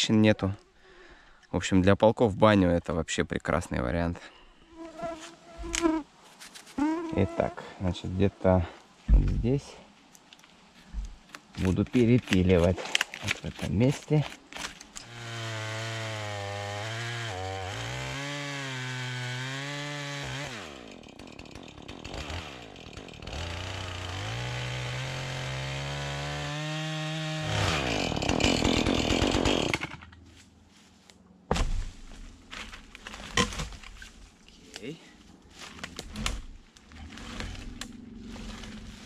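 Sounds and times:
log thump: 0:09.1 - 0:09.5, 0:31.5 - 0:34.0
chainsaw cutting a log: 0:14.1 - 0:30.0.

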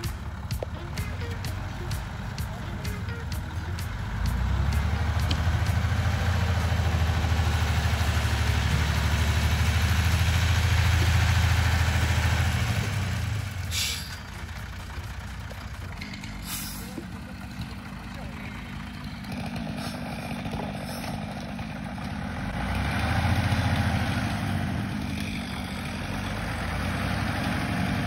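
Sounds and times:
diesel truck engine running: 0:00.0 - 0:28.0
short air hisses: 0:13.7 - 0:14.2, 0:16.4 - 0:17.0.

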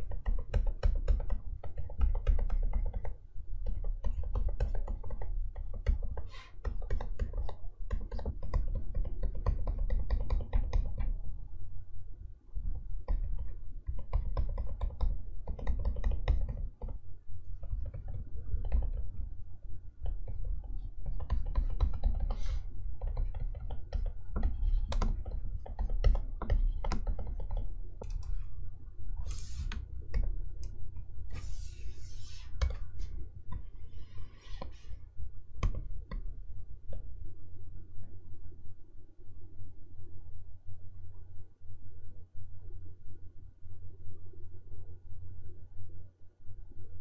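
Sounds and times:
stylus tapping on screen: 0:00.0 - 0:11.2, 0:13.0 - 0:17.0, 0:17.6 - 0:19.3, 0:20.0 - 0:28.5, 0:29.2 - 0:34.9.

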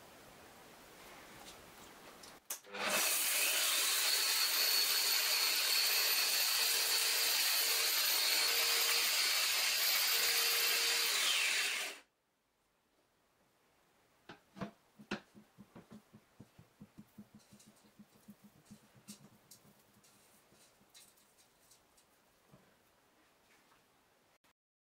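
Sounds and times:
angle grinder whining: 0:02.7 - 0:12.0.

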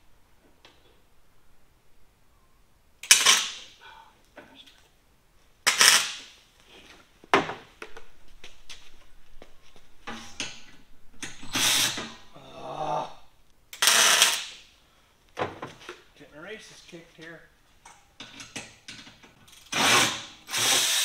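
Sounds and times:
welding arc crackling: 0:13.7 - 0:14.6.

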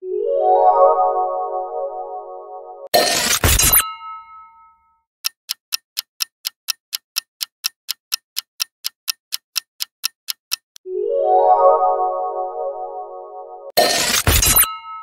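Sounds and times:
clock ticking: 0:05.2 - 0:10.8
chime-like musical tone: 0:10.8 - 0:13.7.

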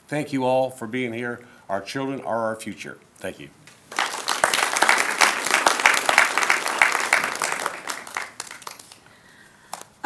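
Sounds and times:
audience applauding: 0:03.9 - 0:09.1.

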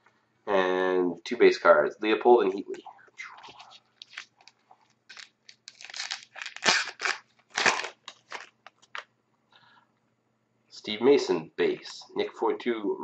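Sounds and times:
wrapper tearing and rustling: 0:03.5 - 0:09.0.

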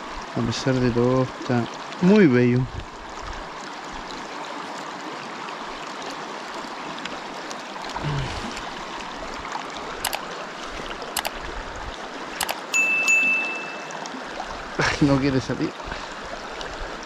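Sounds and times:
river water rushing: 0:02.9 - 0:17.0
sharp clicks: 0:10.0 - 0:10.2, 0:11.2 - 0:11.4, 0:12.4 - 0:12.6.

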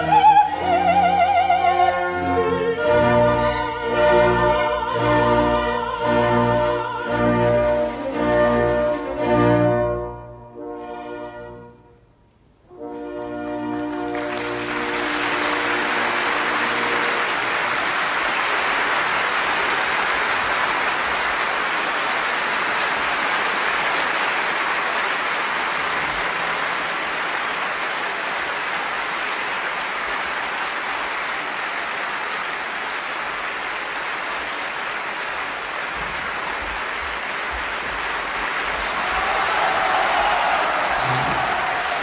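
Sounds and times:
audience applauding: 0:12.9 - 0:42.0.

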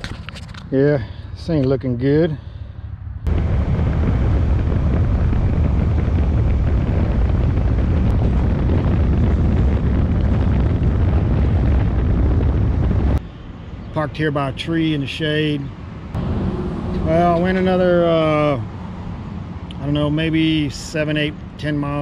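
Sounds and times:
road noise: 0:00.0 - 0:22.0
wind buffeting microphone: 0:03.3 - 0:13.8, 0:15.6 - 0:22.0
motorcycle engine: 0:16.2 - 0:19.4.

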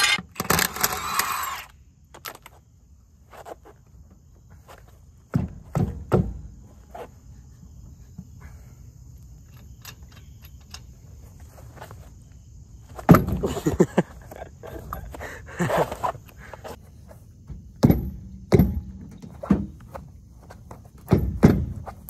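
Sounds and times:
shoe kicking tire thuds: 0:12.9 - 0:13.8, 0:17.4 - 0:22.0.

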